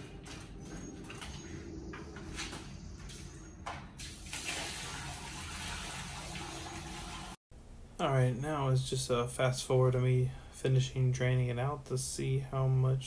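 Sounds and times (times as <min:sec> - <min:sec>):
footsteps: 0:00.0 - 0:04.4
water pouring onto concrete: 0:04.0 - 0:07.4.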